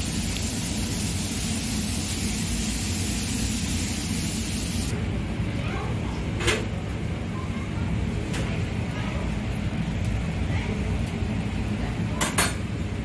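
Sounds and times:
high hiss: 0.0s - 4.9s.

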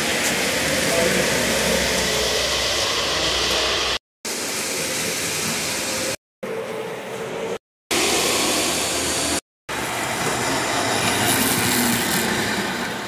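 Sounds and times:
model trains whirring and rumbling: 0.0s - 13.0s.

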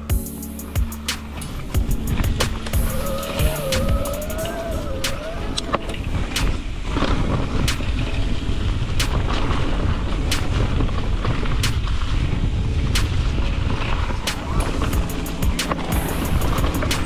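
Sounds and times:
wind and tyres rumbling: 0.0s - 17.0s
motor whine: 0.9s - 6.0s.

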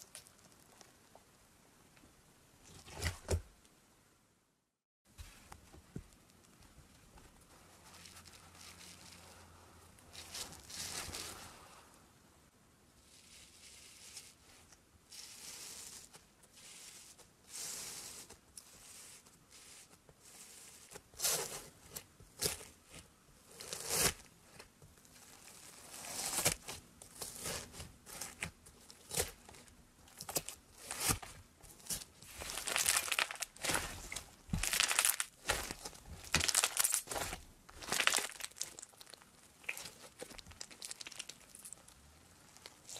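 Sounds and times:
foam beads crackling and popping: 25.2s - 42.9s
slime squishing: 25.3s - 42.9s.

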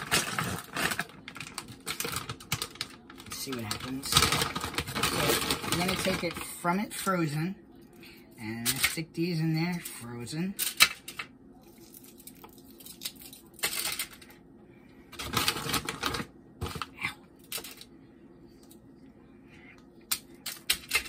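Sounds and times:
plastic bag rustling: 0.0s - 6.6s, 15.2s - 16.9s
aluminium foil crinkling: 0.0s - 7.1s, 10.6s - 14.4s, 15.2s - 17.9s.

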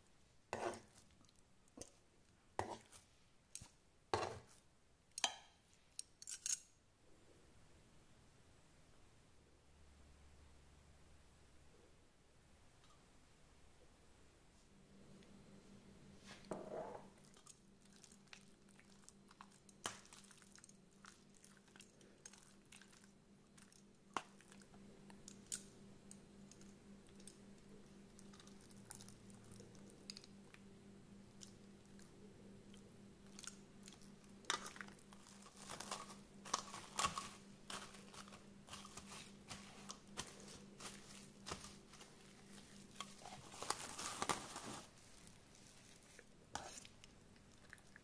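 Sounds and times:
steady low hum: 13.6s - 47.6s
raw meat squelching in a bowl: 17.2s - 25.6s, 33.2s - 48.0s
cling film crinkling: 34.5s - 46.2s.

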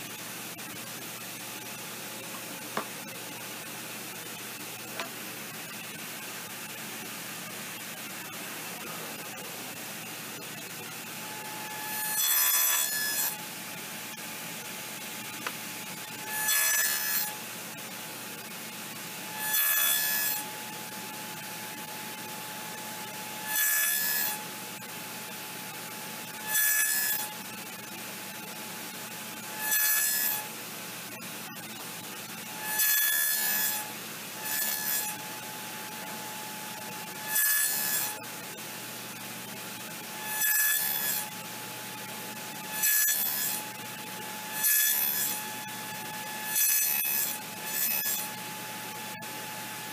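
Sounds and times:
table saw blade humming: 11.2s - 13.4s, 16.1s - 17.4s, 34.4s - 35.3s, 37.0s - 38.2s, 40.2s - 41.3s, 42.6s - 49.9s
saw cutting through board: 11.2s - 13.5s, 16.0s - 17.4s, 19.3s - 24.5s, 26.4s - 27.4s, 29.4s - 30.5s, 32.6s - 38.4s, 40.1s - 41.5s, 42.6s - 49.9s.

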